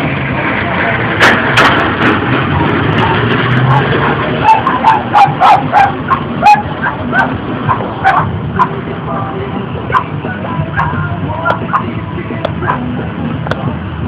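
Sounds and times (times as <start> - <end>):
dog yapping: 3.7 - 8.8, 9.9 - 10.1, 10.8 - 11.9, 12.6 - 12.9.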